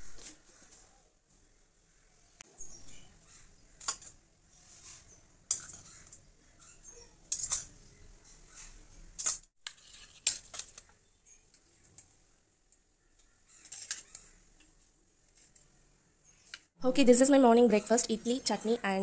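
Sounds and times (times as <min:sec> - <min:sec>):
light spoon scraping: 0:03.9 - 0:10.8.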